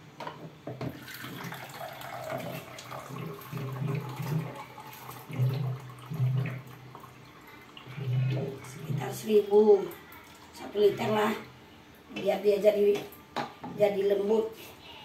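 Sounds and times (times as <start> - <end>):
liquid pouring into pot: 0.9 - 9.2.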